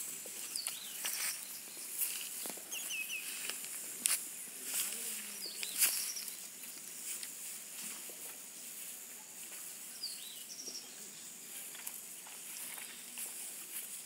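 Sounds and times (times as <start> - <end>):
dry straw rustling and crackling: 0.0 - 14.0
bird chirping: 0.4 - 3.5, 5.2 - 6.8, 9.8 - 11.9.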